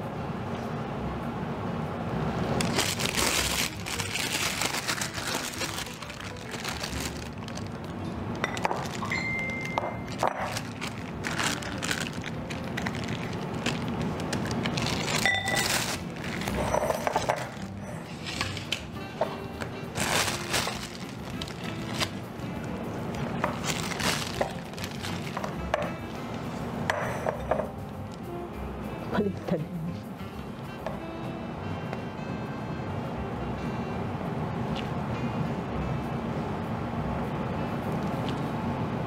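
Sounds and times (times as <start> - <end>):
plastic piping bag crinkling: 2.6 - 18.8, 19.9 - 25.6.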